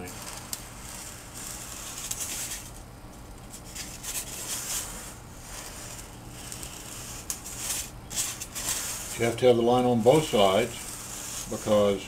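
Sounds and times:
foam block rubbing on board: 0:00.0 - 0:12.0
marker scratching: 0:00.1 - 0:02.8, 0:03.6 - 0:12.0.

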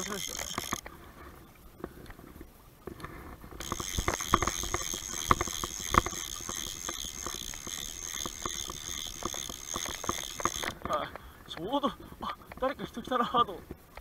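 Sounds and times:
pulsing high-pitched buzz: 0:03.6 - 0:10.7.

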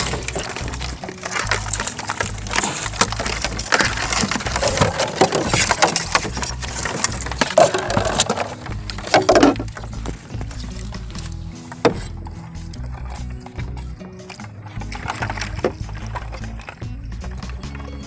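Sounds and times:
wire trap clattering and knocking: 0:00.0 - 0:18.0.

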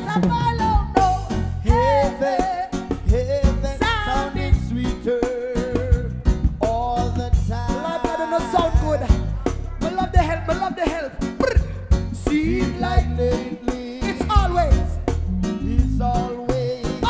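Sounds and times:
live reggae band: 0:00.0 - 0:17.0.

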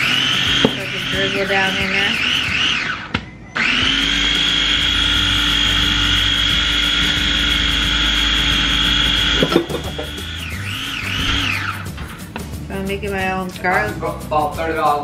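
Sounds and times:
blender motor whining: 0:00.0 - 0:11.9.

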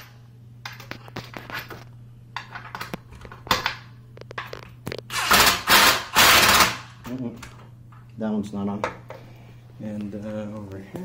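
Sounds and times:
impact driver driving a screw: 0:05.1 - 0:06.9.

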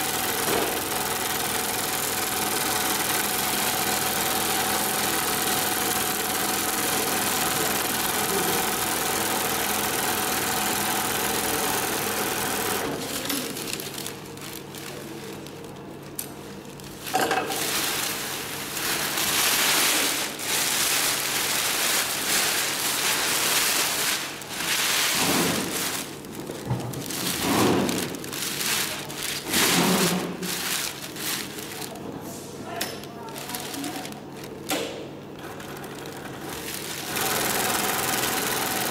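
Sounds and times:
sewing machine running: 0:00.0 - 0:15.1, 0:17.8 - 0:32.0, 0:35.4 - 0:38.9
crinkly cloth rustling: 0:13.1 - 0:32.2, 0:33.0 - 0:34.7.

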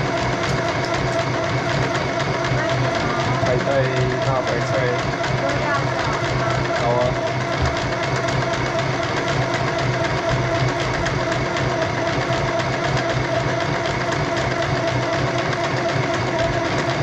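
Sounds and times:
sewing machine running: 0:00.0 - 0:17.0.

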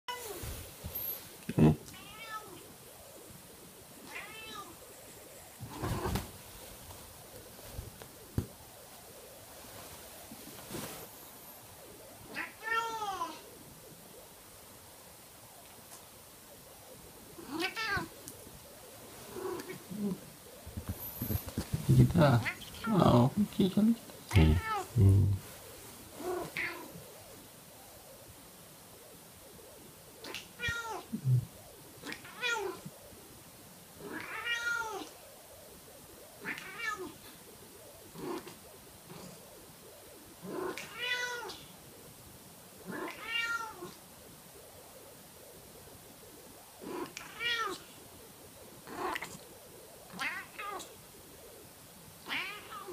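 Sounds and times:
bedding rustling: 0:00.1 - 0:01.4, 0:05.4 - 0:12.1, 0:17.6 - 0:27.0
cat meowing: 0:01.9 - 0:02.6, 0:04.0 - 0:04.8, 0:24.3 - 0:25.0, 0:30.2 - 0:31.1, 0:32.0 - 0:32.8, 0:34.1 - 0:35.1, 0:36.4 - 0:37.2, 0:40.6 - 0:41.6, 0:42.9 - 0:44.0, 0:47.0 - 0:47.8, 0:52.3 - 0:52.9.

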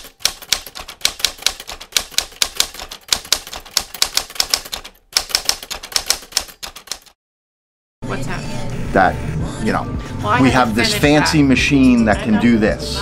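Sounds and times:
typewriter keys clacking: 0:00.0 - 0:07.2.

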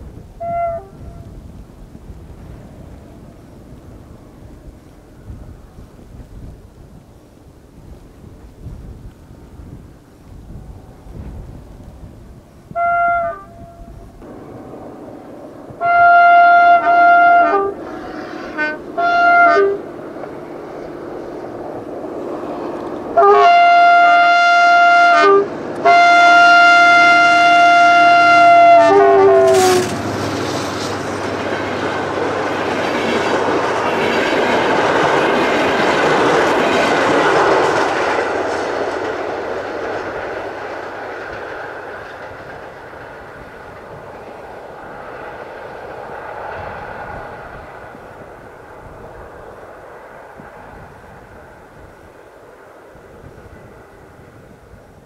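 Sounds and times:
train rumble and wheel clatter: 0:00.0 - 0:55.0
locomotive horn blasts: 0:00.4 - 0:01.3, 0:12.7 - 0:14.0, 0:15.7 - 0:19.9, 0:23.2 - 0:30.0.

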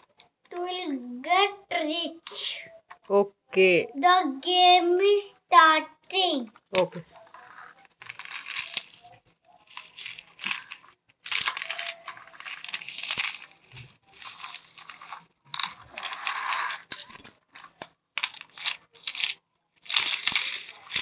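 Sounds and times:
metal coins clinking: 0:07.2 - 0:21.0.

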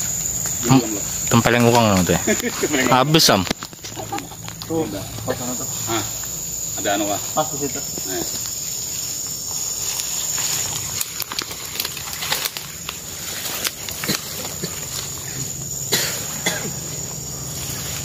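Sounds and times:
high insect drone: 0:00.0 - 0:18.0
leaves rustling underfoot: 0:00.0 - 0:18.0
twigs snapping underfoot: 0:09.5 - 0:15.2.

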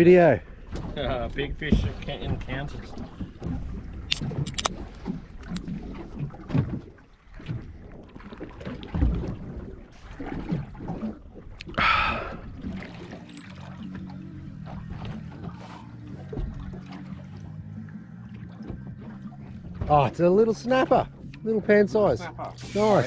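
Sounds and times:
water sloshing against boat hull: 0:00.0 - 0:22.6.

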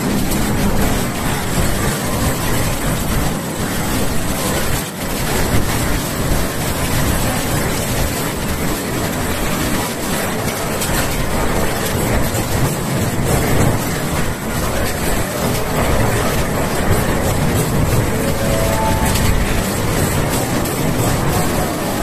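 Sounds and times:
earthquake rumbling and rattling: 0:00.0 - 0:22.0.

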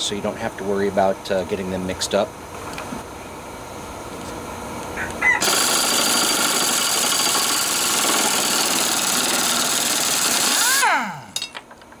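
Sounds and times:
pneumatic impact wrench rattling: 0:05.4 - 0:11.9.

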